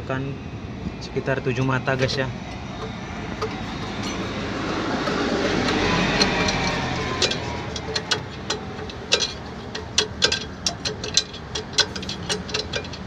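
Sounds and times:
brake adjuster clicking: 2.5 - 13.0.

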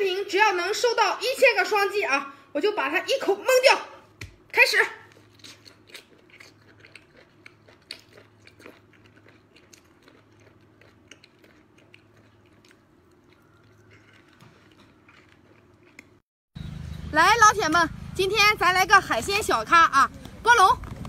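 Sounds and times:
person chewing: 5.0 - 16.2.

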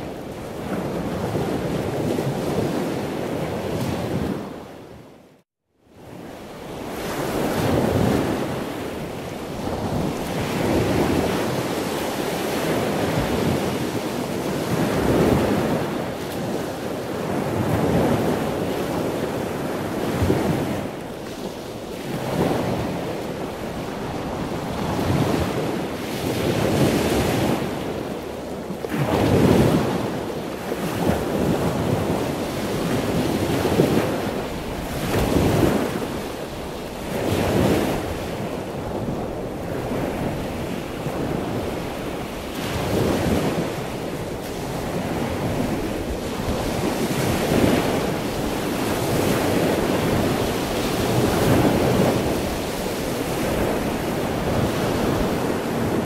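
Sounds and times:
waves rushing and slapping: 0.0 - 5.2, 5.9 - 56.0
wind buffeting microphone: 6.0 - 56.0.

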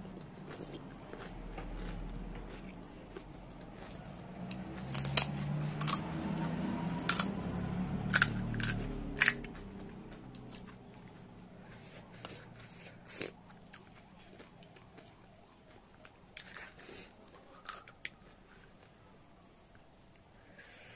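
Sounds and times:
chewing: 0.0 - 20.9.

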